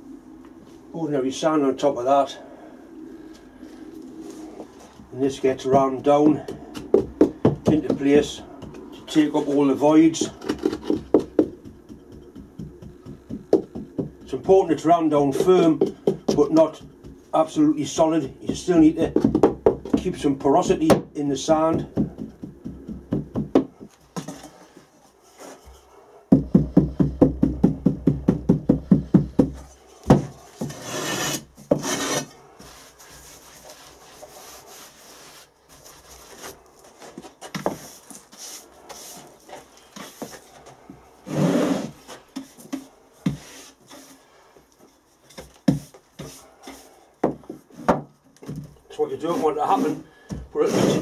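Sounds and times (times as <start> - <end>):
rubbing and scraping on sand: 49.0 - 50.0.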